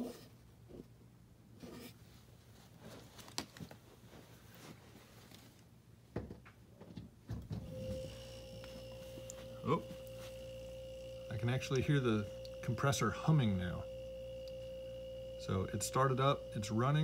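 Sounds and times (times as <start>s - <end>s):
compressor hum and whine: 7.4s - 17.0s.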